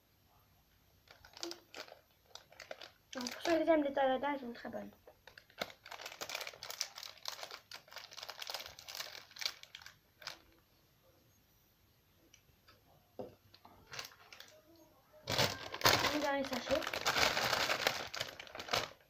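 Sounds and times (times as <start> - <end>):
plastic packet crinkling: 1.0 - 4.0, 5.0 - 10.6, 13.6 - 14.6, 15.2 - 19.0.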